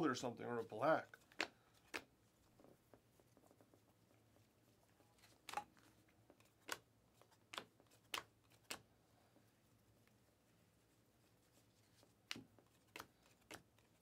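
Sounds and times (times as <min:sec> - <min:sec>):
trading cards flicking: 0:06.4 - 0:08.9, 0:12.3 - 0:13.9.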